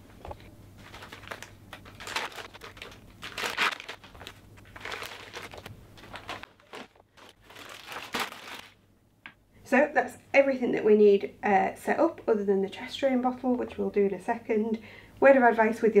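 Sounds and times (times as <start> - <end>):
plastic packaging crinkling: 0.3 - 8.8.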